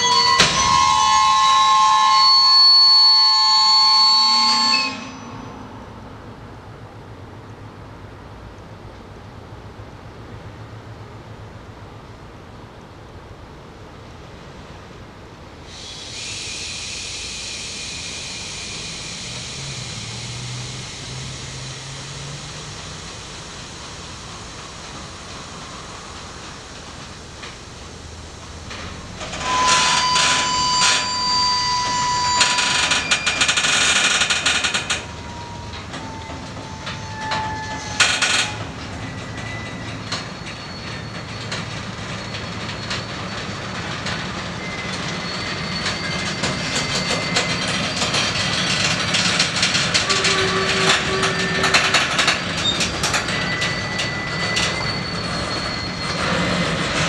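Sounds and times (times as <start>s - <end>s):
wheel squeals and knocks: 0.0s - 5.6s, 28.7s - 57.0s
train couplers clanking and squealing: 0.0s - 6.0s, 15.7s - 57.0s
steady air hiss: 15.6s - 29.2s.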